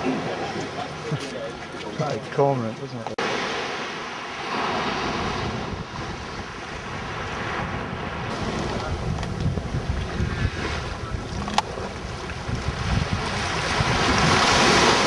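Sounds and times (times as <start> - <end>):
small waves breaking on beach: 3.2 - 15.0
wind buffeting microphone: 4.6 - 15.0.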